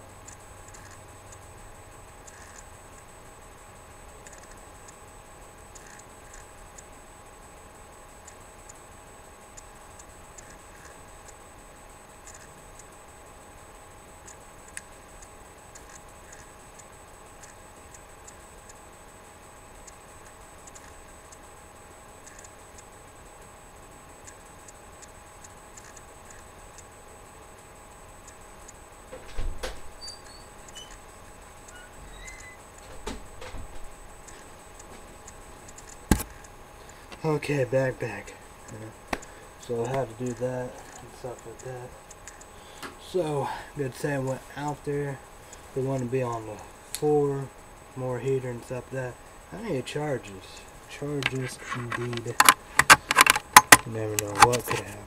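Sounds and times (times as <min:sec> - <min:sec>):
faint ticking: 0:00.0 - 0:29.1, 0:30.0 - 0:49.4
electrical hum: 0:00.0 - 0:55.0.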